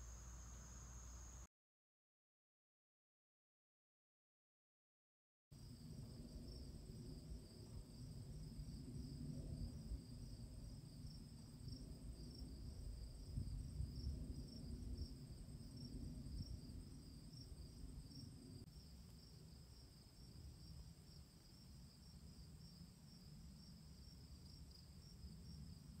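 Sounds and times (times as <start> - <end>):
insect chorus trilling: 0.0 - 1.5.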